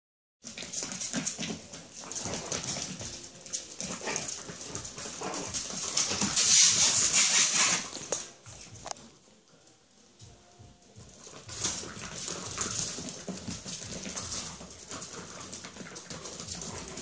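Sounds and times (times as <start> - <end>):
scratchy scuffling: 0.4 - 9.1
mop swishing hiss: 6.2 - 8.8.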